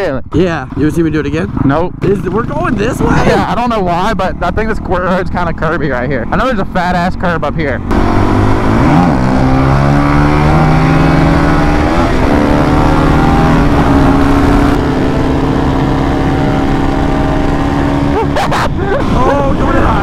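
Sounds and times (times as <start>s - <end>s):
wind rushing over microphone: 7.8s - 20.0s.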